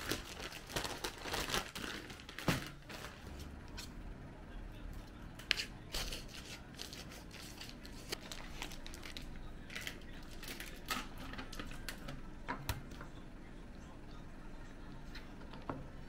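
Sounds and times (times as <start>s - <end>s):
knife crinkling plastic pack: 0.0s - 3.3s, 5.4s - 12.0s.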